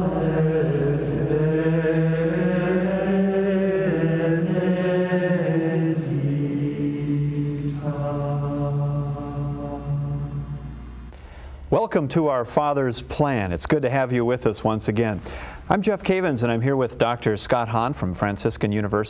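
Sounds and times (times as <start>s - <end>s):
chant-style singing: 0.0s - 10.9s.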